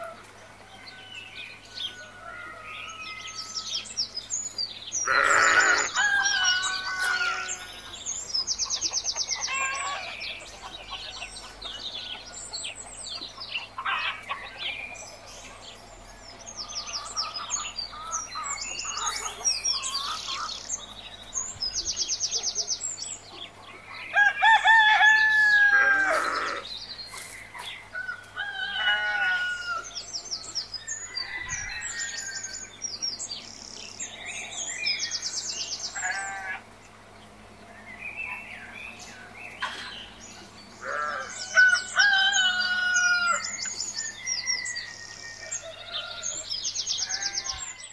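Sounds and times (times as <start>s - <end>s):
small birds chirping: 0.0s - 47.9s
rooster crowing: 5.1s - 7.8s, 24.1s - 26.6s, 28.0s - 32.7s, 40.8s - 47.9s.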